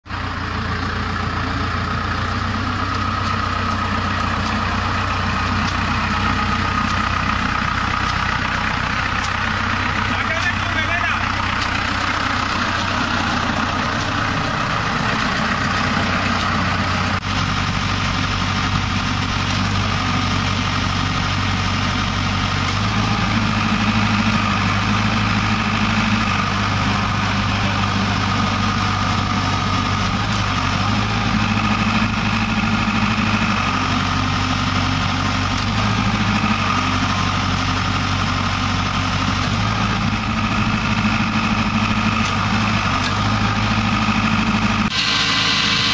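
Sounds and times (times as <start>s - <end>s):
tractor engine idling: 0.0s - 45.9s
hydraulic whine: 39.8s - 45.9s.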